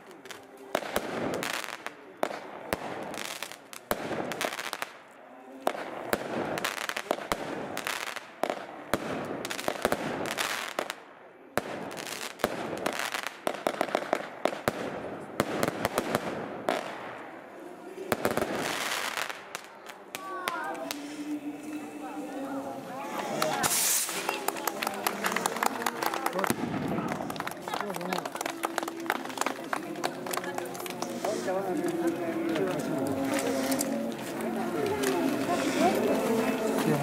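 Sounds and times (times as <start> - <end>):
fireworks bangs and crackles: 0.0 - 22.0, 23.0 - 37.0
fireworks hissing: 18.2 - 25.4, 30.2 - 37.0.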